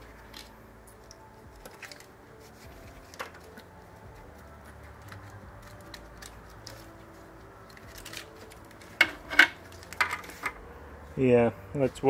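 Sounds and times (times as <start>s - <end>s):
clicks and taps of parts: 8.9s - 10.6s.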